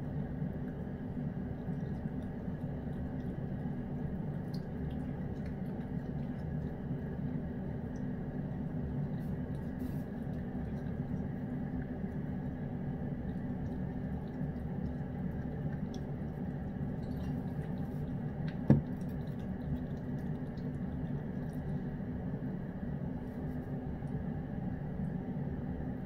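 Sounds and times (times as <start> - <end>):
cat licking and eating: 0.0 - 25.8
steady low hum: 0.0 - 26.0
water dripping into bowl: 1.5 - 21.8.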